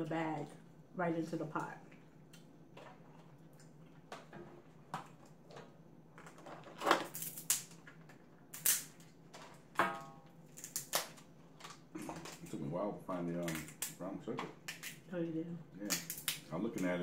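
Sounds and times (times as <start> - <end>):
crab shells cracking: 5.0 - 12.5, 13.4 - 15.1, 15.8 - 16.5.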